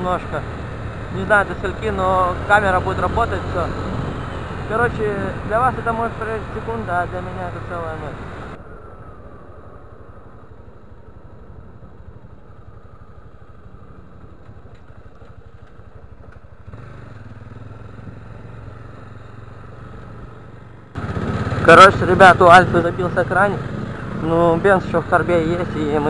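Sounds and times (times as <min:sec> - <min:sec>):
road and wind noise: 0:00.0 - 0:26.0
motorcycle engine running: 0:09.9 - 0:26.0.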